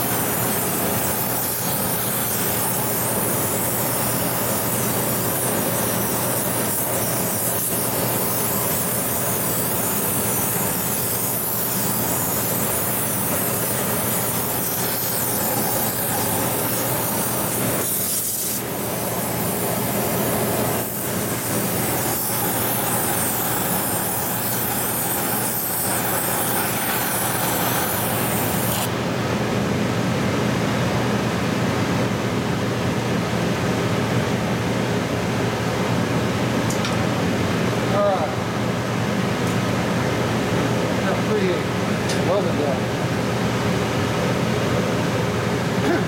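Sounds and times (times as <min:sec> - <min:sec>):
bright hiss: 0:00.0 - 0:28.9
shop equipment humming: 0:00.0 - 0:46.0.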